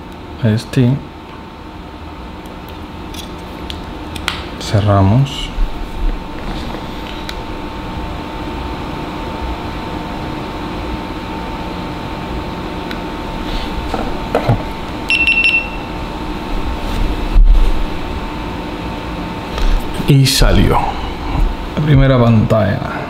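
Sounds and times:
background hum: 0:00.0 - 0:23.0
short high electronic beep: 0:15.1 - 0:15.9.

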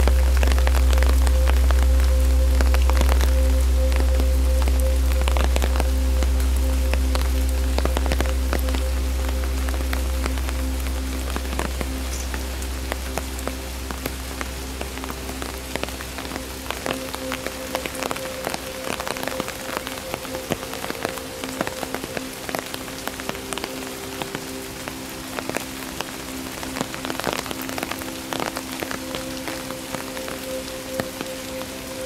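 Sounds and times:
low hum: 0:00.0 - 0:19.9
rain drops striking: 0:00.0 - 0:32.0.

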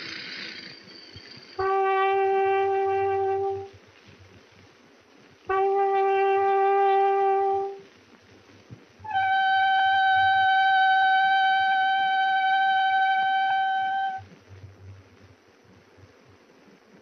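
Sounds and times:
small metal horn blasts: 0:01.6 - 0:03.7, 0:05.5 - 0:07.8, 0:09.1 - 0:14.2.

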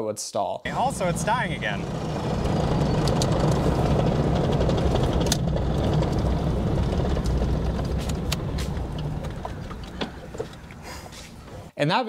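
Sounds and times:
diesel engine running: 0:00.7 - 0:11.7
sharp clicks: 0:02.1 - 0:11.5.

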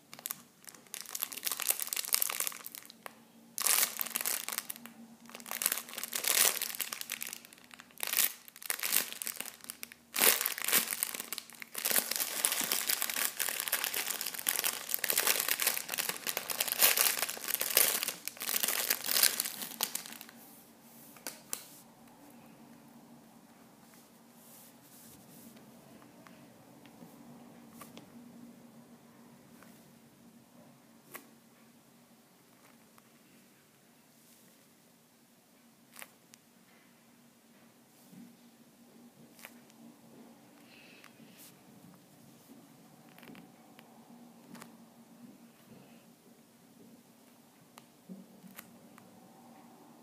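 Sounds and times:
plastic bag crinkling: 0:00.1 - 0:20.4.

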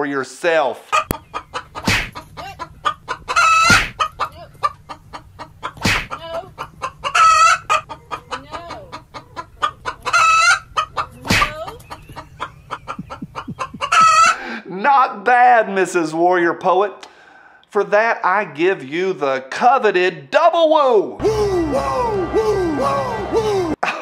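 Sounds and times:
rooster clucking: 0:00.8 - 0:14.5
loud sharp sounds: 0:01.8 - 0:02.2, 0:03.6 - 0:04.0, 0:05.8 - 0:06.2.

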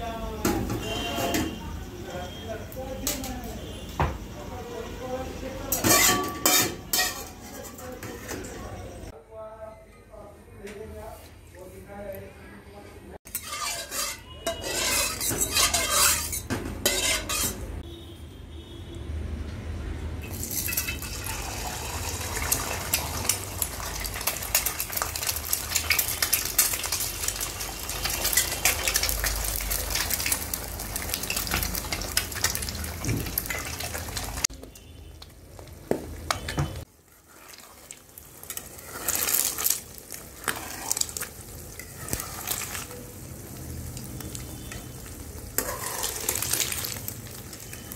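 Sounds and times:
metal utensils scraping pan: 0:05.7 - 0:08.7, 0:13.2 - 0:17.8, 0:38.4 - 0:43.0, 0:45.6 - 0:47.0
eggs sizzling in hot oil: 0:13.2 - 0:17.8, 0:20.2 - 0:47.9.

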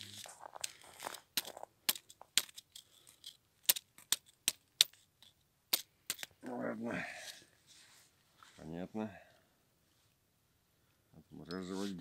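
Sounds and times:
ice clicking and crackling: 0:00.1 - 0:04.9.

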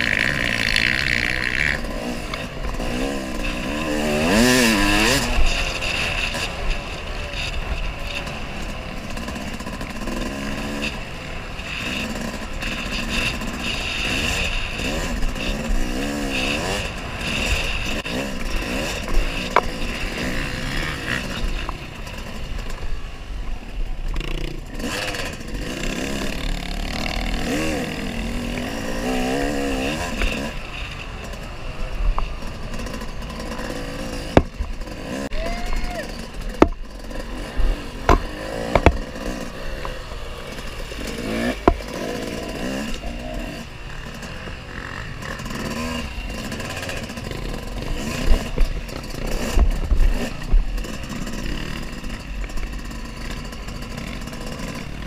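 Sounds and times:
dirt bike engine revving: 0:00.0 - 0:55.0
sharp knocks and clatter: 0:36.4 - 0:37.3, 0:38.0 - 0:40.0, 0:41.0 - 0:42.2.

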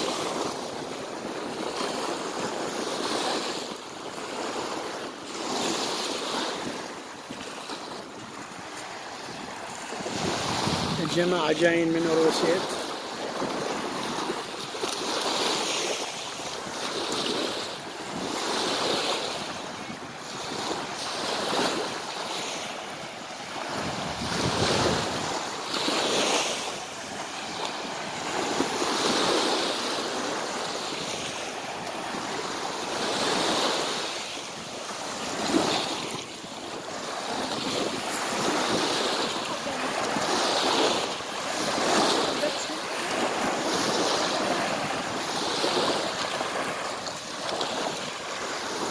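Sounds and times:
waves washing up a pebble beach: 0:00.0 - 0:48.9
wind buffeting microphone: 0:08.2 - 0:11.4, 0:23.5 - 0:25.9.

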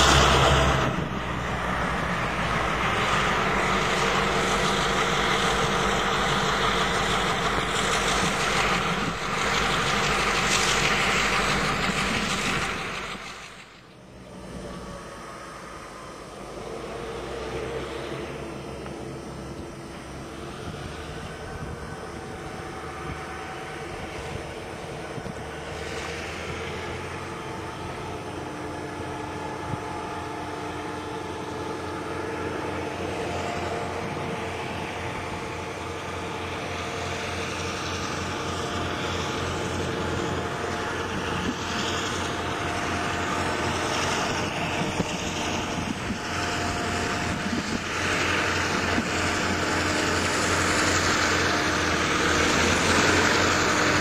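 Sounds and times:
diesel locomotive engine drone: 0:00.0 - 0:54.0.

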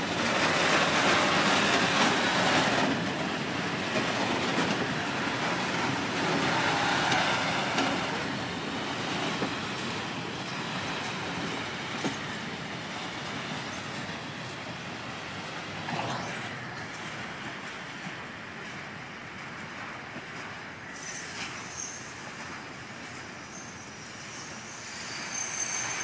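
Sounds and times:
freight train wheels rumbling: 0:00.0 - 0:26.0.

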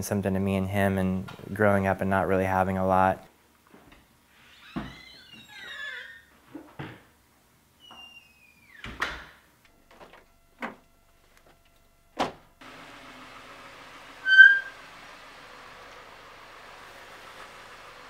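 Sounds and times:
door squeak: 0:04.4 - 0:06.3, 0:07.8 - 0:09.3, 0:14.2 - 0:14.8
car engine humming: 0:12.6 - 0:18.0.

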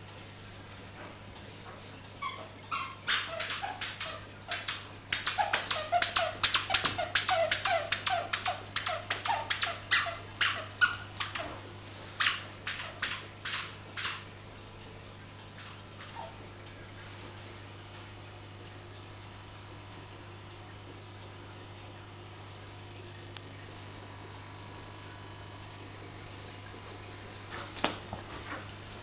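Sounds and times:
dog yipping and whining: 0:02.2 - 0:11.6, 0:16.0 - 0:16.4.

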